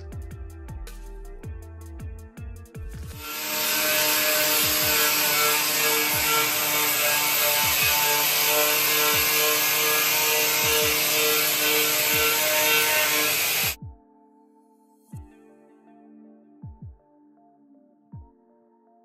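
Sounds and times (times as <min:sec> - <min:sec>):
angle grinder wire wheel whining: 0:03.2 - 0:13.8.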